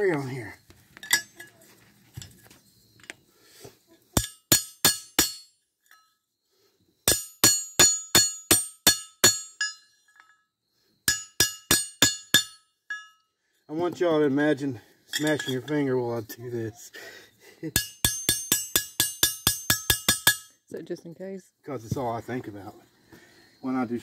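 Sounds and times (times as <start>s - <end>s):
hammer striking metal pipe: 4.2s - 6.0s, 7.0s - 10.3s, 11.0s - 13.1s, 17.7s - 20.5s.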